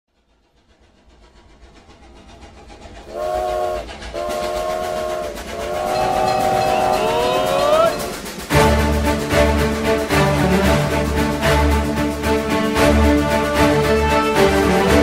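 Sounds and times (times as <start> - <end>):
train rumble and clatter: 0.1 - 15.0
steam whistle blasts: 3.1 - 8.4
upbeat music: 5.5 - 15.0.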